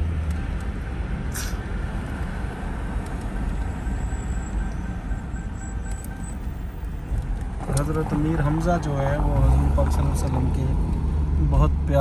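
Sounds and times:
vehicle rumble and road noise: 0.0s - 12.0s
short hiss: 1.3s - 1.6s.

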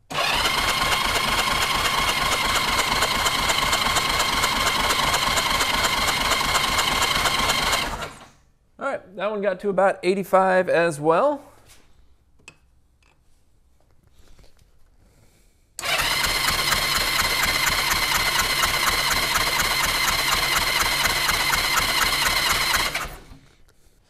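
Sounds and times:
starter motor whine: 0.1s - 8.3s, 15.8s - 23.4s
engine cranking on starter: 0.1s - 8.4s, 15.8s - 23.4s.

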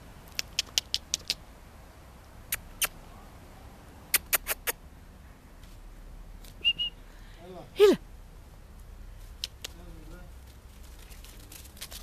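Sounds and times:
mouth kissing squeaks: 0.3s - 1.4s, 2.5s - 3.0s, 4.1s - 4.8s.

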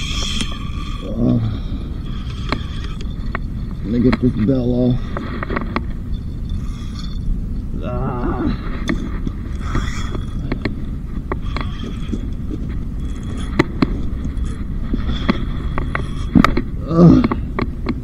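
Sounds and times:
fishing reel clicks and knocks: 0.0s - 1.4s, 2.0s - 7.2s, 8.9s - 16.6s
wind rumble on microphone: 0.0s - 18.0s
person exclaiming: 7.8s - 8.6s.

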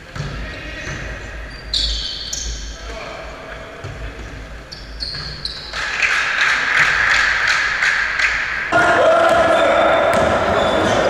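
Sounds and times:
basketball bouncing: 0.0s - 1.3s, 5.0s - 5.8s, 9.3s - 11.0s
sneakers squeaking on wooden floor: 0.0s - 7.0s, 9.3s - 11.0s.

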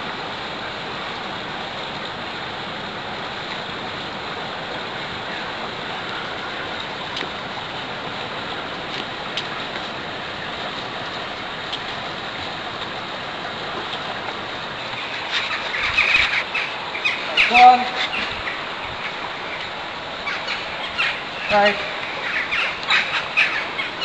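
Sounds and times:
rushing outdoor background noise: 0.0s - 24.0s.

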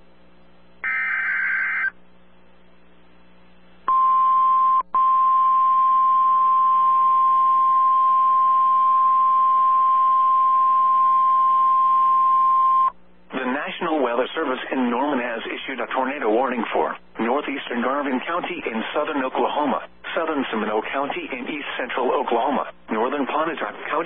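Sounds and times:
digital header tones: 0.8s - 1.9s
steady warning alarm tone: 0.8s - 1.9s
warbling two-tone data screech: 0.8s - 1.9s.

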